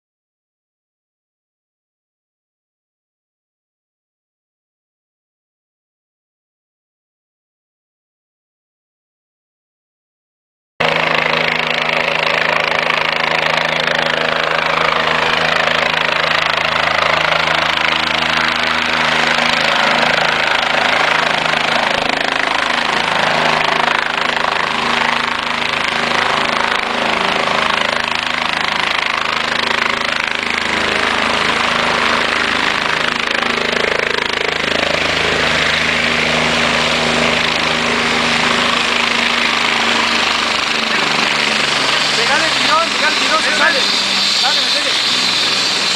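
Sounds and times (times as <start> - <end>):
helicopter engine running: 10.8 - 45.9
helicopter rotor chop: 10.8 - 45.9.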